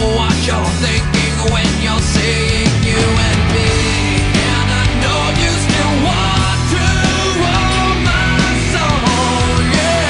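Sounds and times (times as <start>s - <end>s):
loud rock music: 0.0s - 10.0s.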